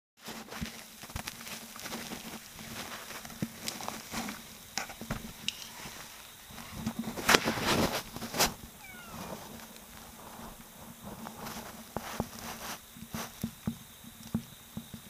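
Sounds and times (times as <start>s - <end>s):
soft rustling among leaves: 0.2s - 15.0s
faint low hum: 2.1s - 12.6s.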